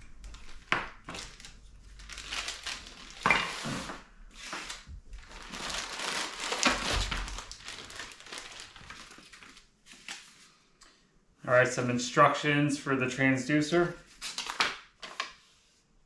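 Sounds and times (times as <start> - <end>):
plastic bags crinkling: 0.2 - 10.3, 14.2 - 15.3.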